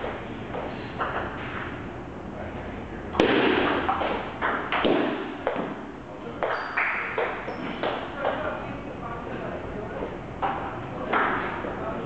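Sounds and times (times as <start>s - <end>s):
table tennis ball hits: 3.2s - 5.8s.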